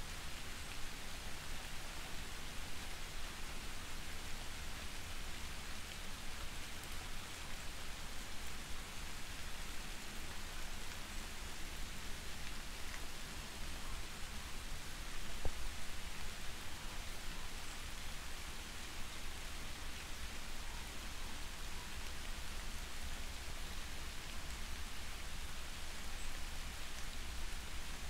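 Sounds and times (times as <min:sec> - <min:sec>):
soft rain hissing: 0:00.0 - 0:28.0.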